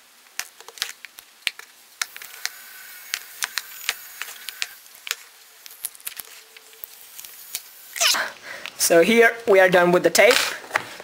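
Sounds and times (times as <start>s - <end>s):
tape peeling off cardboard box: 0.7s - 8.4s
faint hiss: 1.1s - 9.5s.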